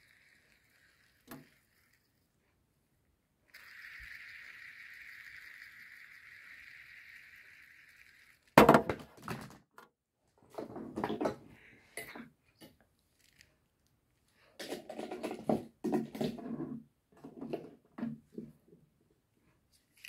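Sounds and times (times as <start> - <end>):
fidget toys clicking and clattering: 0.0 - 2.4, 3.5 - 9.4, 12.0 - 13.9, 19.8 - 20.0
fidget spinner whirring: 0.0 - 2.7, 3.4 - 8.8, 13.0 - 13.5, 19.7 - 20.0.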